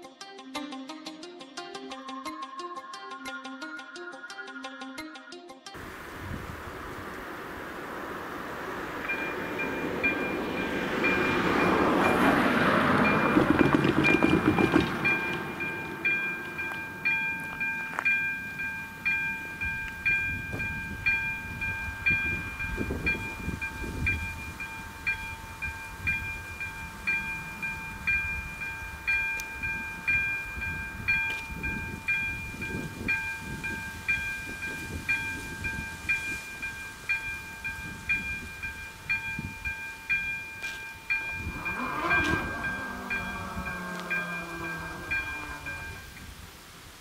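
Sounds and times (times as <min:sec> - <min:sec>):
level-crossing bell ringing: 0:09.0 - 0:46.1
barrier motor running: 0:41.1 - 0:46.0.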